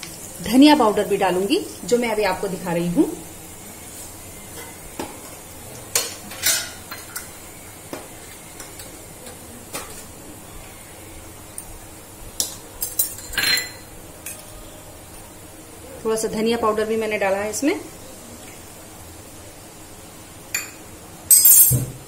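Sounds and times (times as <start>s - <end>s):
hot oil sizzling in a pan: 0.0s - 21.3s
spoon clinking on metal: 20.6s - 21.9s.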